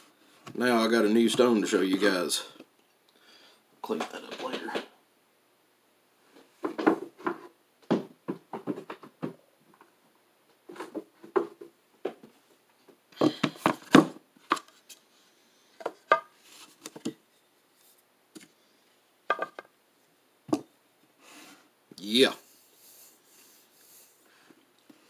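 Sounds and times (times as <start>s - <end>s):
hard objects knocking on wooden table: 19.3s - 19.7s.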